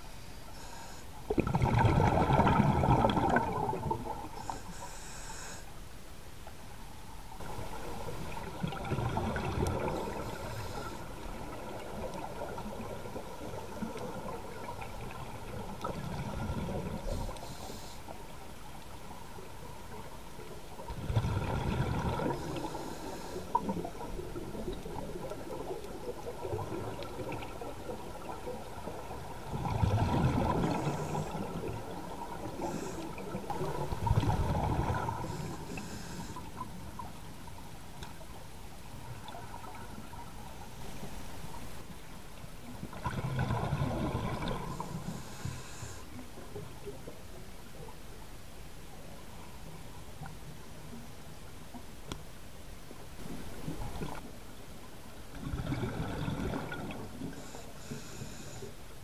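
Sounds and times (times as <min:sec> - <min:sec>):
regulator inhalation hiss: 0:00.1 - 0:01.2, 0:04.4 - 0:05.7, 0:17.1 - 0:18.2, 0:22.4 - 0:23.6, 0:35.2 - 0:36.5, 0:44.9 - 0:46.1, 0:57.3 - 0:58.8
exhaled bubbles gurgling: 0:01.3 - 0:04.5, 0:07.4 - 0:17.9, 0:19.0 - 0:37.2, 0:42.6 - 0:47.2, 0:53.2 - 0:54.3, 0:55.3 - 0:58.5.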